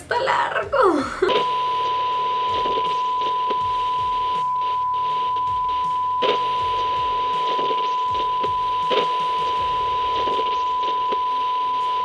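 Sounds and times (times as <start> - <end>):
crackly static: 0.0 - 12.0
steady test tone beep: 1.3 - 12.0.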